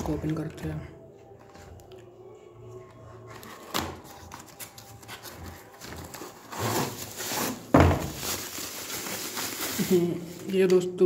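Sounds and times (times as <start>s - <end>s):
cardboard box rubbing and scraping: 5.5s - 7.9s.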